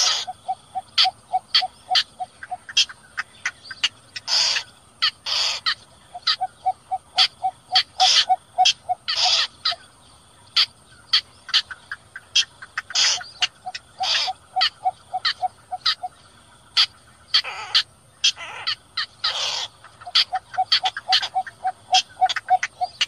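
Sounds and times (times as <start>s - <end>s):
low bird hoots: 0.0s - 3.6s, 4.2s - 9.8s, 12.8s - 16.2s, 16.8s - 23.0s
short sharp bird calls: 0.0s - 9.8s, 10.6s - 16.1s
long harsh bird calls: 0.0s - 23.0s.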